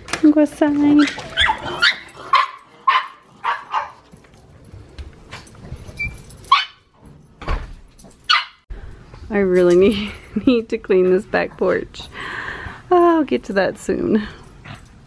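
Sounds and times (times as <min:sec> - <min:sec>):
dog barking and yipping: 0:00.9 - 0:04.2, 0:06.4 - 0:06.9, 0:08.2 - 0:08.6.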